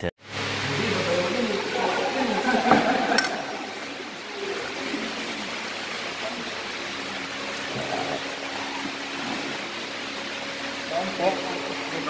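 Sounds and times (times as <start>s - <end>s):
faint voices: 0.0s - 9.6s
room hiss: 0.0s - 12.0s.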